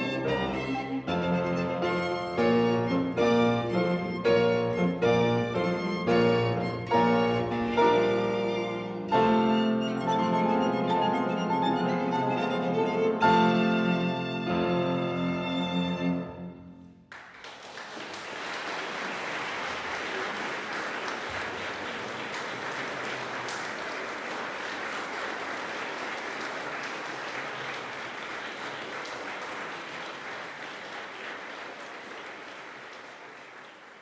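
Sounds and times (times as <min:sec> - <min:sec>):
audience applause: 0:17.1 - 0:34.0.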